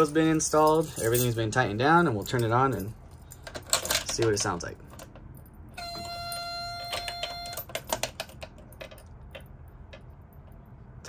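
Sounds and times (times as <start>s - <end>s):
electronic warning buzz: 5.8s - 7.6s.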